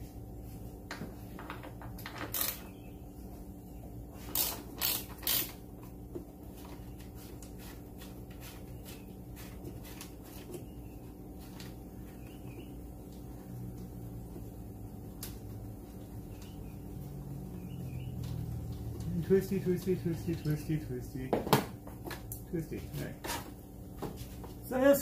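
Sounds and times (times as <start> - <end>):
socket ratchet clicking: 4.3 - 5.6.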